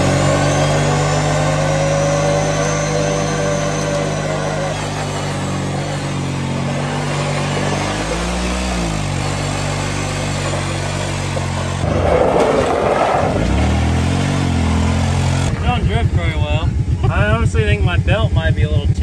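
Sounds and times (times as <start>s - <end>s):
tires spinning on gravel: 0.0s - 17.7s
atv engine revving high: 0.0s - 19.0s.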